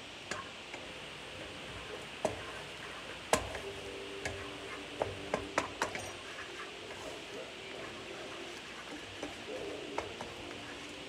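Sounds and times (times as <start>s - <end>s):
steady hiss: 0.0s - 11.0s
wooden spoon tapping skillet: 0.2s - 11.0s.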